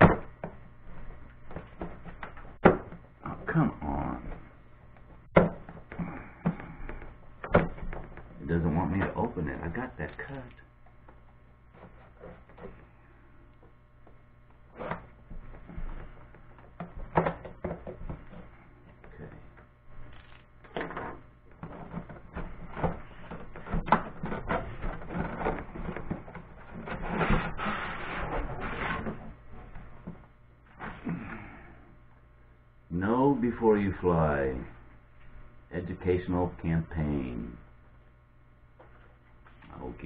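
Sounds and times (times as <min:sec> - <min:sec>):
cardboard scraping and rustling: 0:20.8 - 0:30.2
cardboard sliding: 0:22.0 - 0:29.7.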